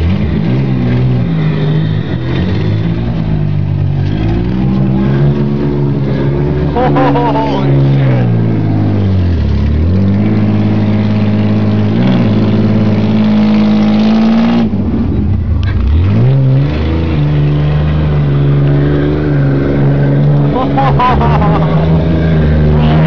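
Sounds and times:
engine revving hard: 15.7s - 23.0s.

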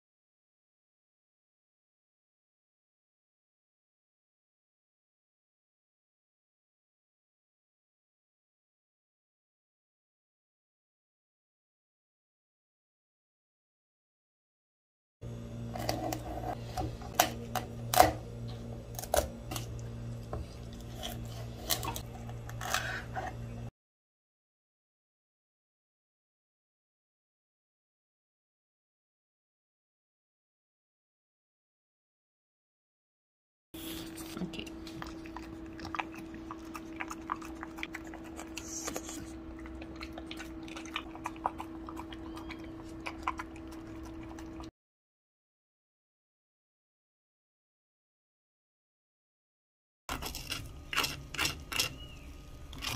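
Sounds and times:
steady hum: 15.2s - 23.7s
steady low hum: 15.2s - 23.7s, 33.8s - 44.7s
dog eating from metal bowl: 34.0s - 44.7s, 50.1s - 52.9s.

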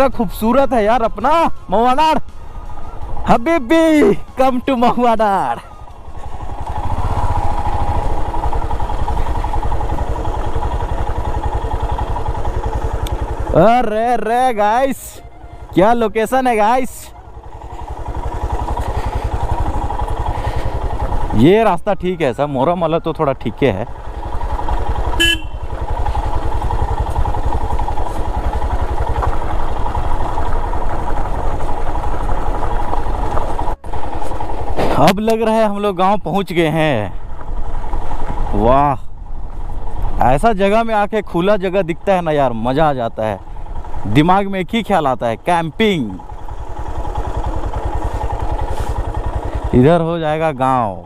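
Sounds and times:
motorcycle engine running: 0.0s - 51.0s
horn beep: 25.1s - 25.8s.

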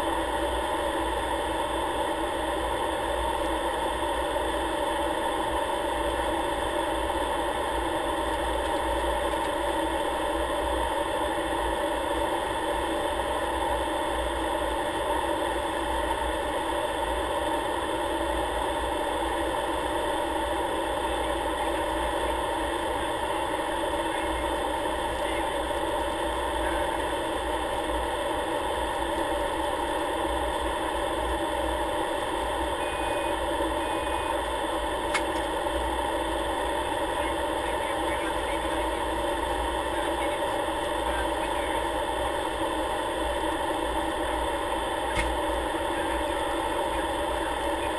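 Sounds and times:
propeller aircraft engine drone: 0.0s - 47.9s.

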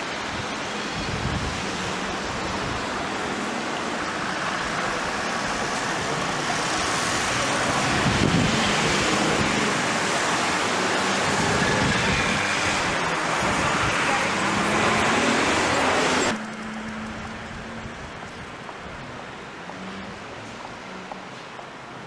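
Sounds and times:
vehicle passing close: 0.0s - 18.6s
cars passing on road: 0.0s - 22.0s.

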